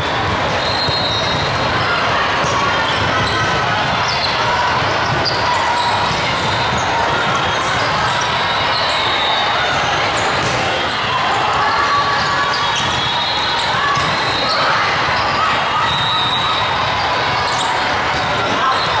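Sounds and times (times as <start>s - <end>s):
din of spectators' voices: 0.0s - 19.0s.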